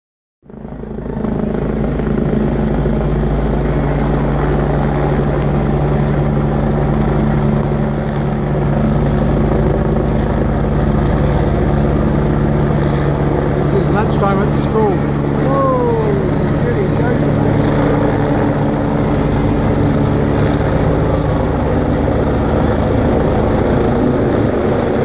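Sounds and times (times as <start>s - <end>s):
helicopter flying overhead: 0.4s - 25.0s.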